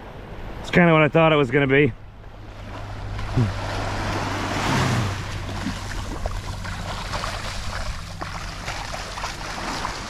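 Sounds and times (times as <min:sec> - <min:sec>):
small waves washing on sand: 0:02.4 - 0:10.0
shark splashing in water: 0:02.8 - 0:10.0.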